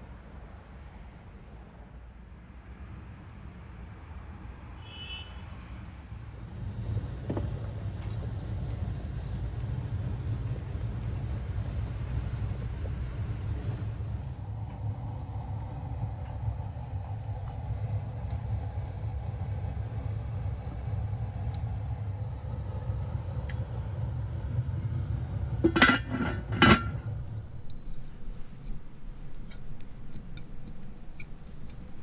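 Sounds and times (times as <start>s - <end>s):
iron lid clanking on pot: 25.6s - 27.1s.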